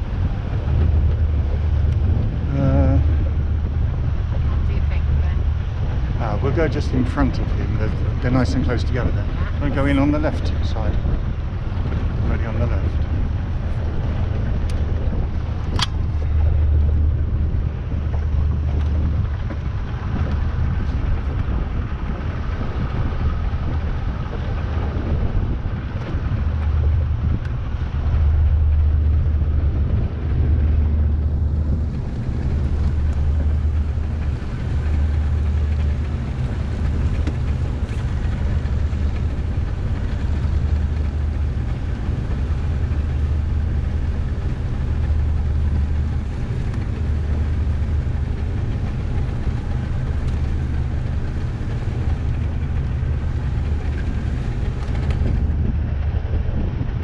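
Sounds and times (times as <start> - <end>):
motorboat engine running: 0.0 - 57.0
wind buffeting microphone: 0.0 - 57.0.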